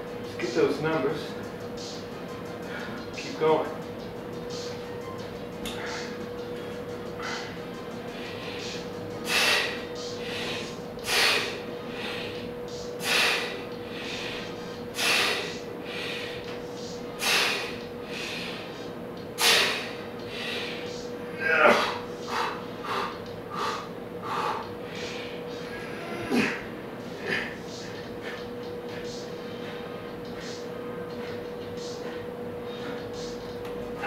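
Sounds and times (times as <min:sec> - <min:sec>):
man breathing out hard: 0:08.2 - 0:12.4, 0:13.0 - 0:16.5, 0:17.2 - 0:18.7.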